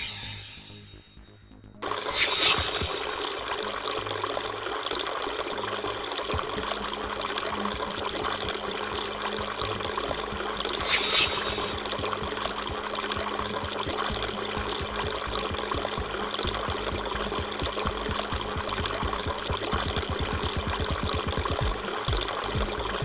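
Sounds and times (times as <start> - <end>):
water trickling into basin: 1.8 - 23.0
brief hiss: 2.0 - 3.2, 10.8 - 11.8.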